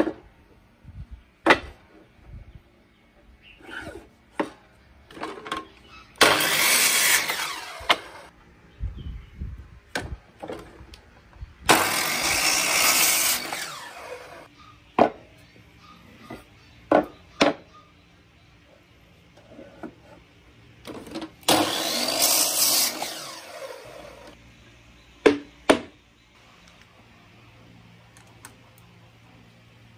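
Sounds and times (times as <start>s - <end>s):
miter saw cutting wood: 6.2s - 8.3s, 11.7s - 14.5s, 21.4s - 24.4s.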